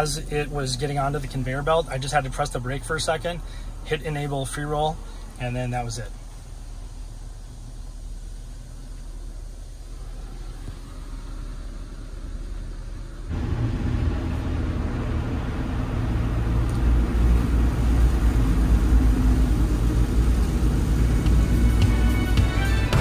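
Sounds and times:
low rumble: 6.7s - 23.0s.

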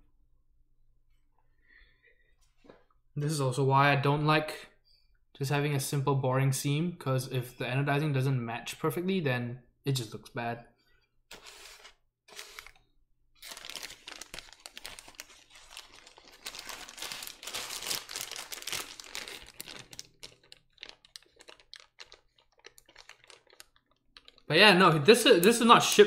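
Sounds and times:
plastic packaging crinkling: 11.3s - 12.8s, 13.4s - 26.0s.

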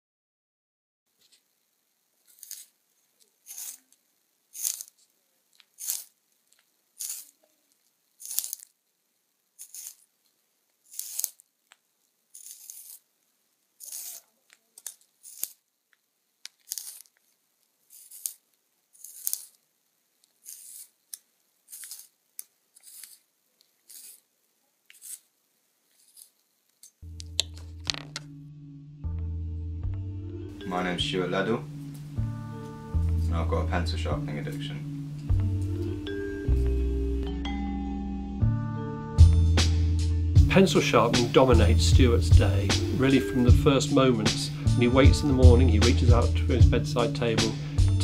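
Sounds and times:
pencil sharpener scraping: 2.2s - 2.8s, 3.4s - 7.4s, 8.2s - 8.7s, 9.6s - 10.1s, 10.8s - 11.4s, 12.3s - 13.1s, 13.8s - 15.6s, 16.5s - 17.2s, 17.9s - 19.6s, 20.2s - 24.3s, 24.9s - 25.3s, 25.9s - 27.0s.

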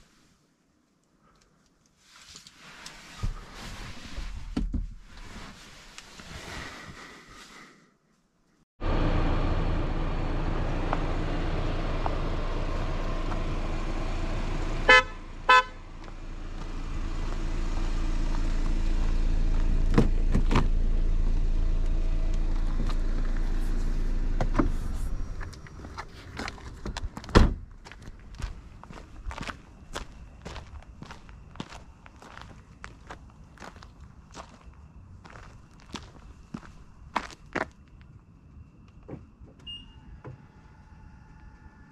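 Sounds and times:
car engine running: 8.8s - 26.1s
car horn toots: 14.8s - 15.8s.

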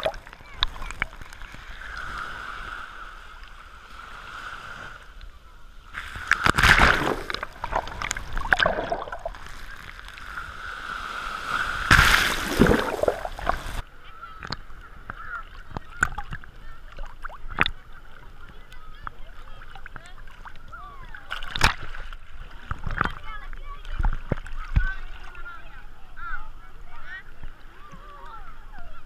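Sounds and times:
sea waves crashing: 0.0s - 13.8s
water sloshing and splashing: 5.9s - 25.8s
water washing back: 6.0s - 17.8s.

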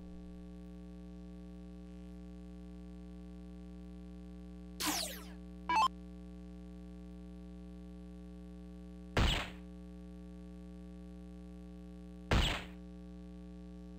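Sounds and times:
short electronic beep: 4.8s - 5.9s.

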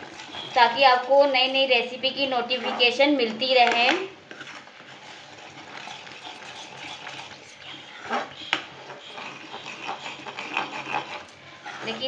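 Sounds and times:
spoon stirring thick paste: 0.0s - 12.0s.

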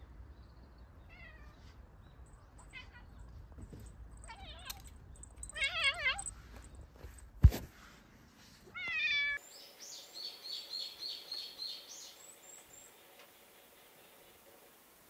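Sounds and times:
cat meowing: 1.1s - 1.6s, 8.7s - 9.4s.

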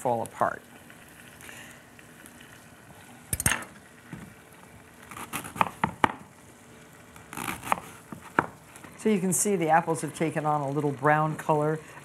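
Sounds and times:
knife cutting cabbage on cutting board: 5.1s - 6.2s, 7.2s - 8.6s.

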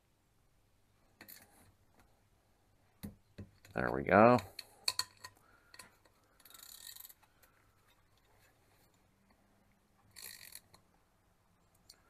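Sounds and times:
torque wrench ratcheting: 6.4s - 7.2s, 10.1s - 10.7s.

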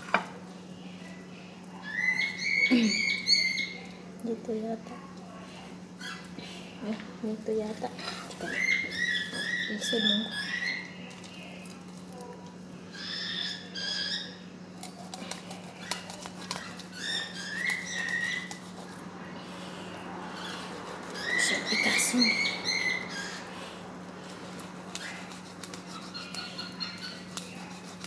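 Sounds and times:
steady low hum: 0.0s - 28.0s
knife scraping fish: 14.8s - 19.1s, 24.2s - 28.0s.

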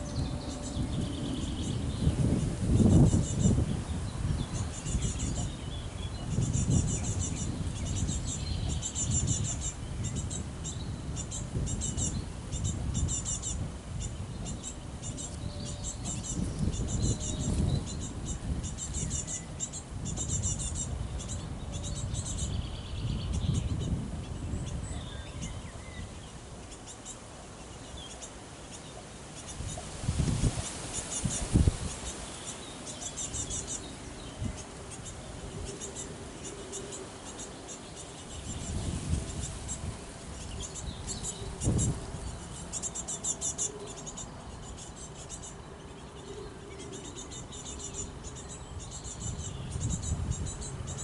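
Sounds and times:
wind rumbling on microphone: 0.0s - 28.1s, 28.9s - 51.0s
small birds chirping: 0.0s - 51.0s
insects chirping: 29.4s - 51.0s.

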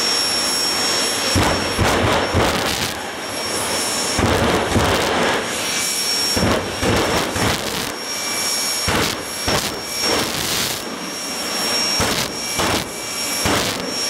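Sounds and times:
jet engine roaring with whine: 0.0s - 14.0s
sharp bangs: 1.2s - 8.0s, 8.8s - 10.9s, 11.9s - 14.0s.

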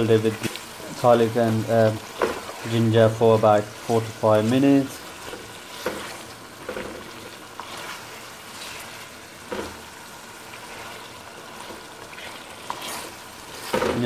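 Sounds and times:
wooden spoon scraping a pot: 0.0s - 3.1s, 3.7s - 9.9s, 10.5s - 14.0s
meat frying in oil: 0.0s - 14.0s.

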